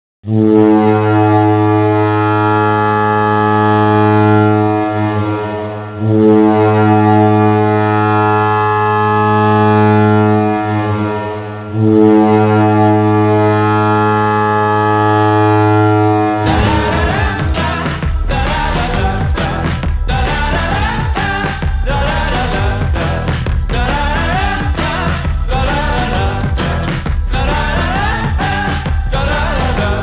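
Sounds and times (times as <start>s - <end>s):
goal horn blasts: 0.2s - 18.4s.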